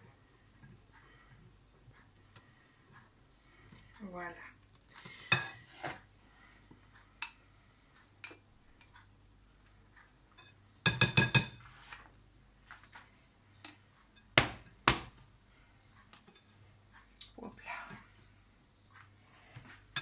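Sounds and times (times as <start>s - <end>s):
spatula clinking on bowls: 5.0s - 6.0s, 10.4s - 11.7s, 13.6s - 14.4s, 16.1s - 16.6s, 19.6s - 20.0s.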